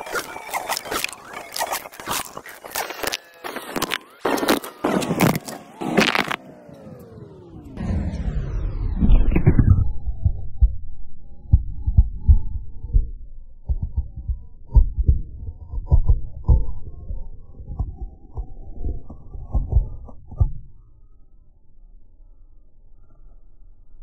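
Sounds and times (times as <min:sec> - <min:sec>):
tyre crushing cubes on asphalt: 0:00.0 - 0:06.5.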